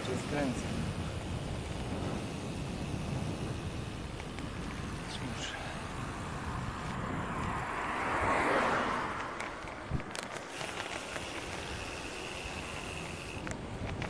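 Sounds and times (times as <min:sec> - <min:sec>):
faint high whine: 0:00.0 - 0:06.6
wind buffeting microphone: 0:00.0 - 0:14.0
vehicle passing: 0:04.5 - 0:13.4.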